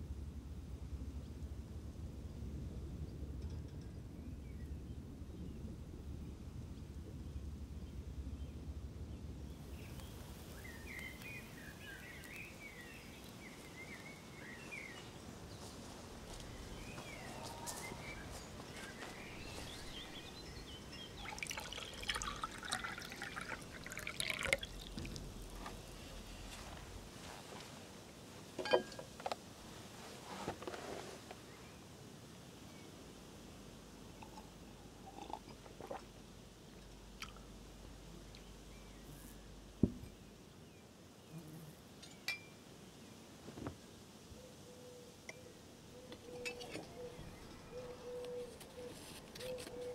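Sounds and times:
water trickling and dripping: 0:16.4 - 0:27.1, 0:34.1 - 0:37.6
dull thump: 0:39.8 - 0:40.2.

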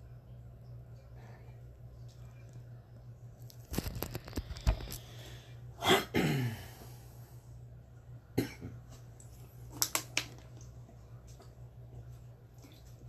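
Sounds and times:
steady low hum: 0:00.0 - 0:13.0
person coughing: 0:05.8 - 0:06.7, 0:08.4 - 0:08.8.

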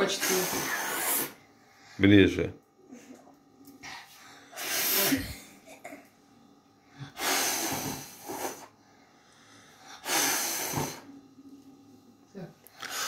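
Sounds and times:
child blowing puffs of breath: 0:04.1 - 0:05.5, 0:07.0 - 0:08.8, 0:09.4 - 0:11.1.

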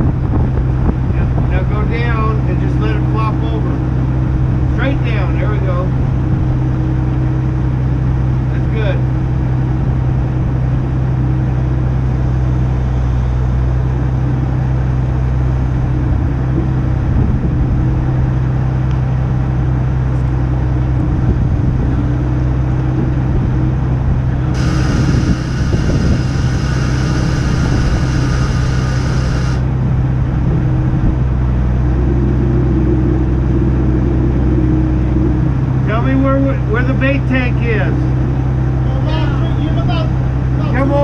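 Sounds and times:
crane engine rumbling: 0:00.0 - 0:41.0
high-pitched whine: 0:24.4 - 0:29.8.

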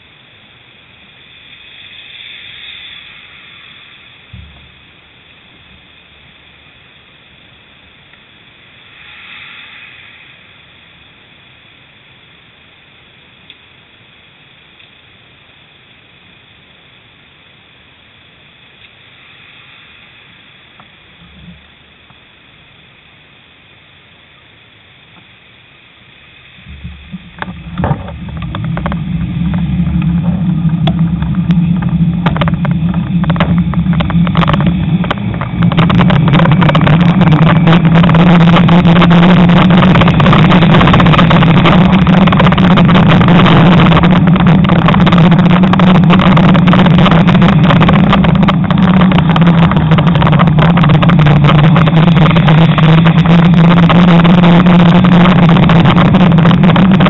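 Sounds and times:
wind buffeting microphone: 0:26.6 - 0:57.0.

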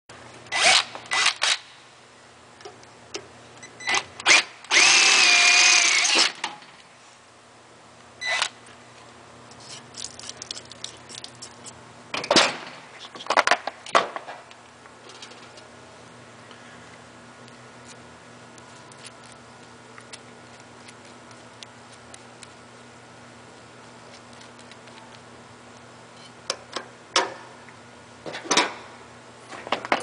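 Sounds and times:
cordless drill drilling metal: 0:00.5 - 0:01.6, 0:04.3 - 0:06.4.

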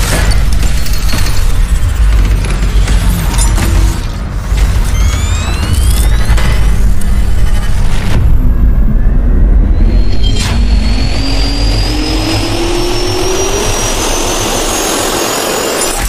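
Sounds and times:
deep rumble: 0:00.0 - 0:15.8
jet turbine whine spooling up: 0:04.8 - 0:16.0.

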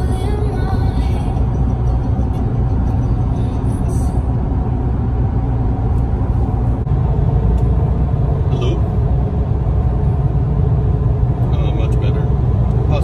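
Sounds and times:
car road and engine rumble: 0:00.0 - 0:13.0.

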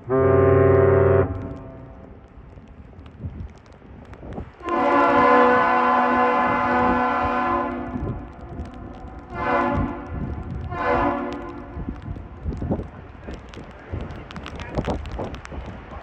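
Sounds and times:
deep ship horn blasts: 0:00.0 - 0:02.1, 0:04.6 - 0:11.8.

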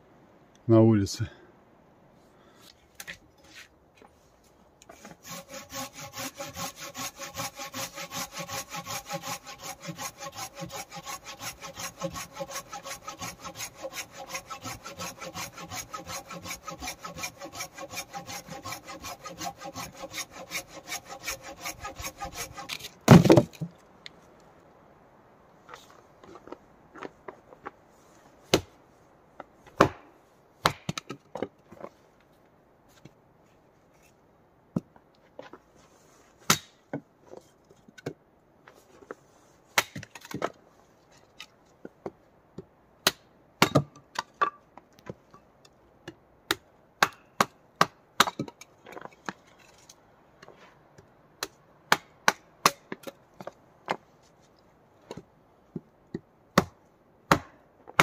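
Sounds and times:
wood chopping and splitting: 0:05.0 - 0:23.8, 0:28.5 - 0:28.7, 0:29.7 - 0:31.5, 0:36.5 - 0:36.8, 0:39.8 - 0:40.6, 0:43.0 - 0:45.2, 0:46.1 - 0:49.1, 0:55.1 - 0:58.0.

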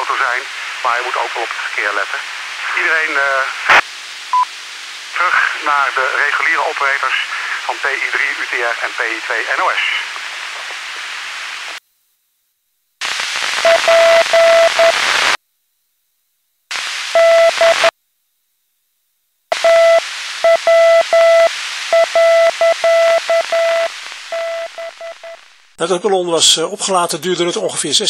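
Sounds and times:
shortwave radio static hiss: 0:00.0 - 0:12.2, 0:13.0 - 0:15.4, 0:16.6 - 0:17.9, 0:19.4 - 0:25.9
morse code beeps: 0:13.6 - 0:15.0, 0:17.2 - 0:17.9, 0:19.5 - 0:25.4.

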